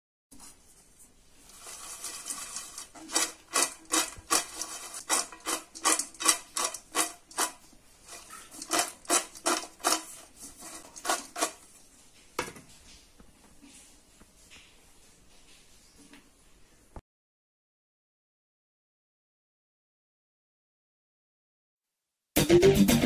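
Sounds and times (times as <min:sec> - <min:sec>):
fries rattling in a steel bowl: 0:01.3 - 0:12.6.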